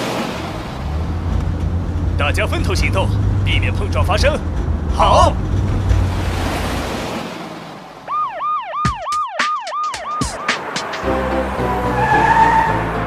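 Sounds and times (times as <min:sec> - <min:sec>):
cartoon siren yelping wail: 0:08.1 - 0:10.6, 0:11.9 - 0:13.0
children's song instrumental: 0:08.2 - 0:13.0.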